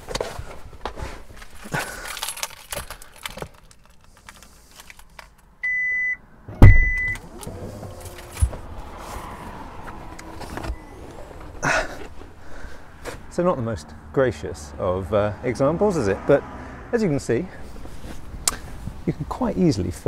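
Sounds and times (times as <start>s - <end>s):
keys jangling: 1.4s - 5.4s
short beep: 5.6s - 7.2s
loud thump: 6.5s - 7.0s.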